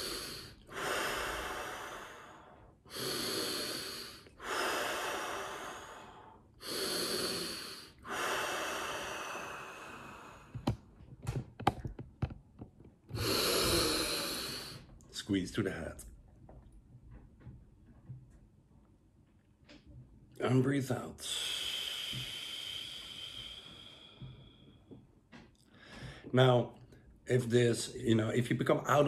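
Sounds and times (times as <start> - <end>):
man breathing deeply: 0.0 - 10.8, 13.1 - 15.0, 21.2 - 26.3.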